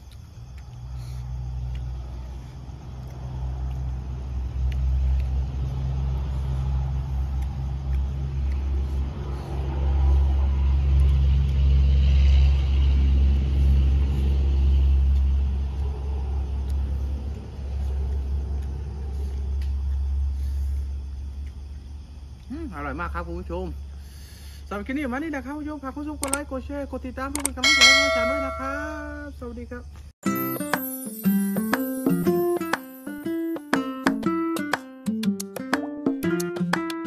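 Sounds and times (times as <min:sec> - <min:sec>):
low engine-like rumble: 0:00.0 - 0:22.6.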